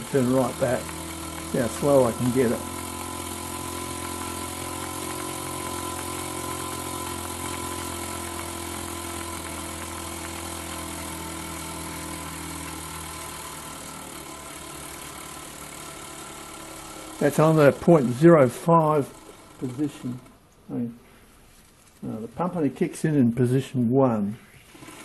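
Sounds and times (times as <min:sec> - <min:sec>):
steam hissing: 0:00.0 - 0:13.8
model steam engine humming: 0:00.0 - 0:20.3.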